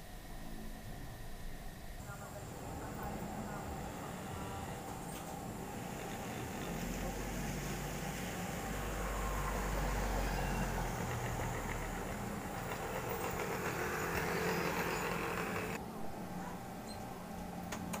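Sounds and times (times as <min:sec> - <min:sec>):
car driving past: 0:02.6 - 0:15.8.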